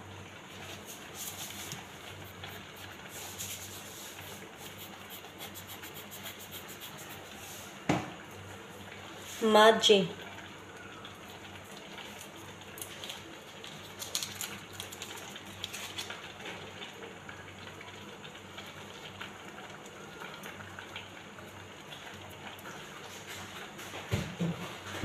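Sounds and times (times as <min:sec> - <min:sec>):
pot of rice simmering: 0:00.0 - 0:25.0
foil wrapper crinkling: 0:12.2 - 0:16.2.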